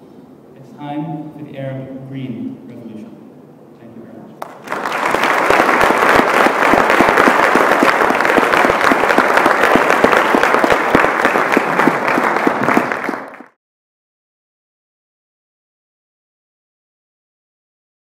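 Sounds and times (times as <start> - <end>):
audience applauding: 4.4 - 13.6.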